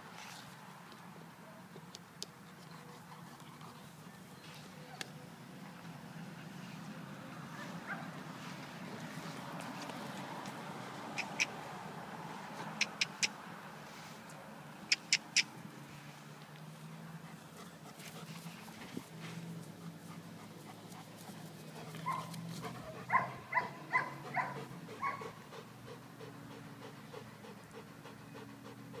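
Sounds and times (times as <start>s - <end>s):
dog panting: 17.1s - 29.0s.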